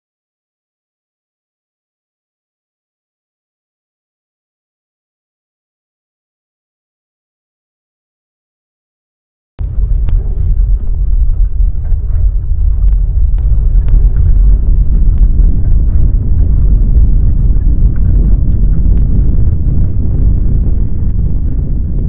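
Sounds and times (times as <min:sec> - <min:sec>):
loud low earthquake rumble: 0:09.6 - 0:22.0
sharp clicks and rattles: 0:09.6 - 0:22.0.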